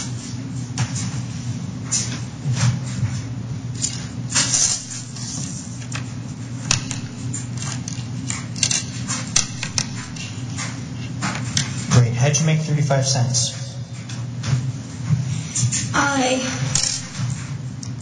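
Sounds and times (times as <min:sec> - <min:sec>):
steady low hum: 0:00.0 - 0:18.0
coins clicking and scraping: 0:16.8 - 0:17.2.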